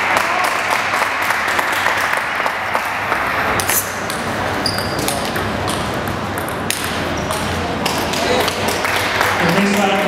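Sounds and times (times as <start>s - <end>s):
hall background noise: 0.0s - 10.0s
table tennis ball clicking: 5.0s - 9.5s.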